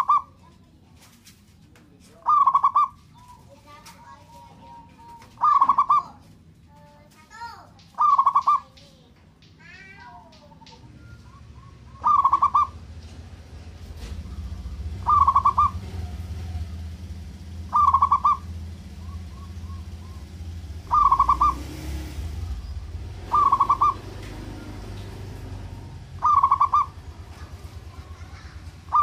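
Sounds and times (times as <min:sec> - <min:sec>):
dove cooing: 0:00.0 - 0:00.4, 0:02.2 - 0:03.4, 0:04.3 - 0:06.2, 0:08.0 - 0:08.7, 0:10.5 - 0:12.9, 0:14.0 - 0:29.0
steady low hum: 0:10.3 - 0:29.0.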